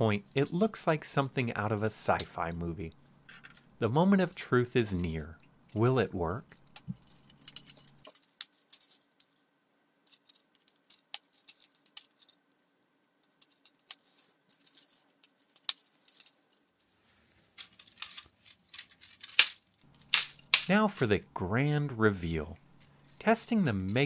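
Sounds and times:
plastic parts clicking: 0:10.1 - 0:12.4, 0:13.2 - 0:16.6, 0:17.6 - 0:20.7.

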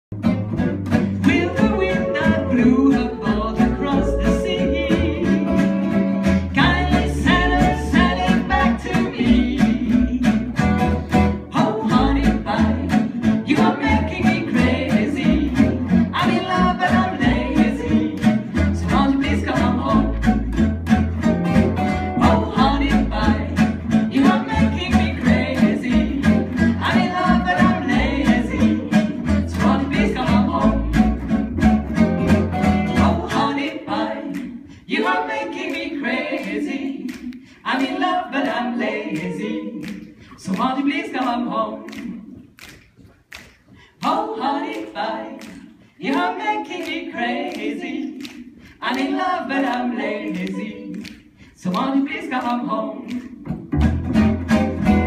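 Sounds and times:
plucked upright bass: 0:00.0 - 0:42.7, 0:53.2 - 0:55.0
strummed acoustic guitars: 0:00.1 - 0:34.0, 0:53.5 - 0:55.0.

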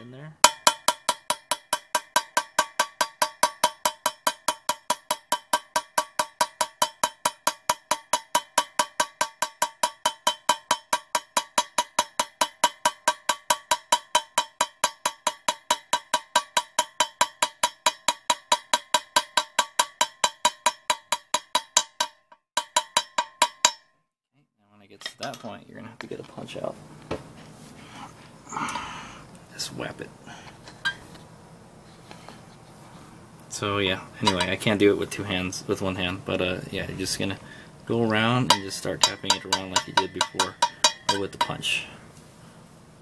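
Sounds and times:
hammer tapping metal: 0:00.4 - 0:23.9, 0:34.2 - 0:34.9, 0:38.1 - 0:41.9.

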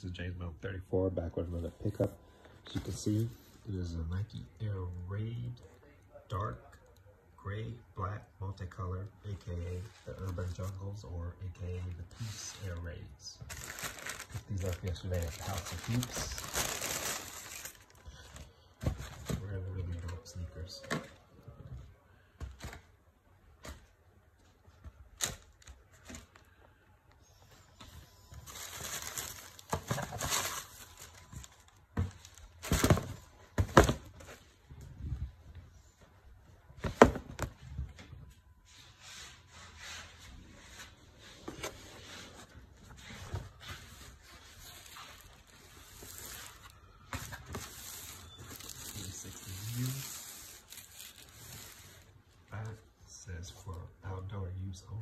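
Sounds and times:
sneaker and tissue paper rustling: 0:11.8 - 0:18.0, 0:27.6 - 0:34.6, 0:38.6 - 0:52.3.

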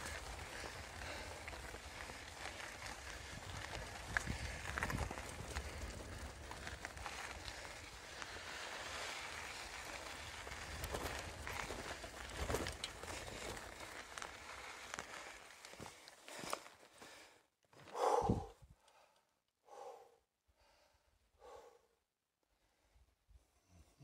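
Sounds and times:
person breathing heavily: 0:00.0 - 0:03.2, 0:04.2 - 0:08.6, 0:15.1 - 0:22.0
wind rumbling on microphone: 0:00.0 - 0:13.5, 0:18.1 - 0:18.7.

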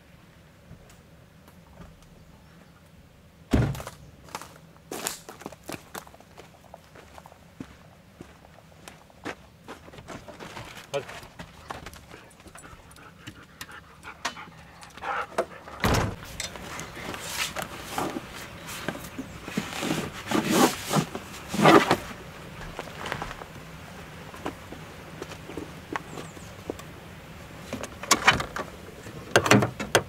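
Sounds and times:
dog panting: 0:12.0 - 0:15.8.

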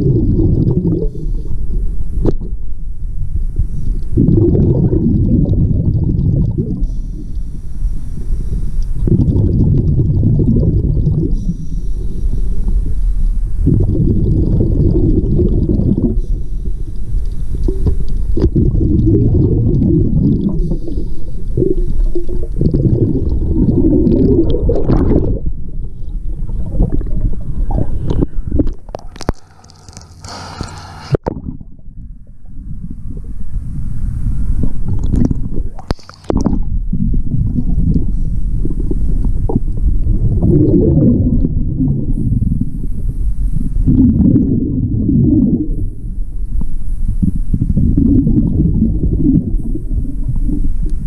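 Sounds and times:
exhaled bubbles gurgling: 0:00.0 - 0:51.0
regulator inhale hiss: 0:06.8 - 0:09.0, 0:11.3 - 0:13.7, 0:16.2 - 0:18.4, 0:20.6 - 0:22.0, 0:29.2 - 0:31.2
water splashing: 0:14.0 - 0:31.6, 0:34.9 - 0:36.8.

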